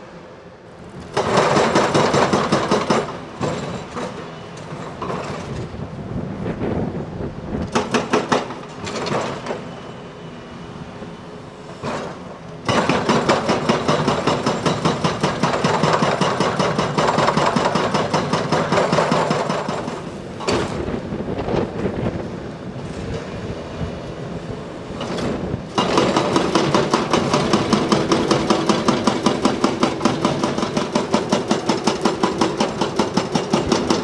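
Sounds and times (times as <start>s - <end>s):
hydraulic breaker hammering rock: 1.1s - 4.2s, 7.7s - 9.6s, 11.8s - 20.8s, 25.0s - 34.0s.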